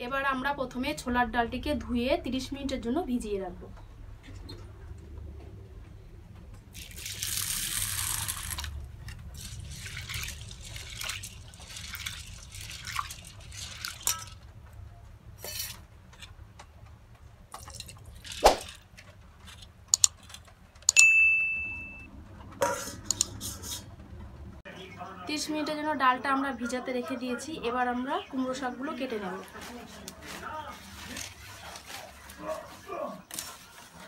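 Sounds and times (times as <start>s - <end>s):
lentils swished by hand in water: 6.8s - 14.4s, 17.6s - 18.8s, 29.5s - 34.0s
water pouring onto lentils: 6.8s - 14.4s
steel bowls knocking and clinking: 9.5s - 14.5s.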